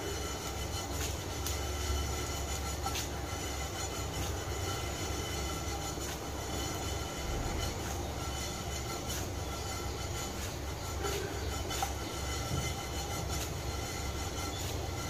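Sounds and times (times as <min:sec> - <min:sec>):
spices roasting low rumble: 0:00.0 - 0:15.0
pan scraping and rattling: 0:03.9 - 0:15.0.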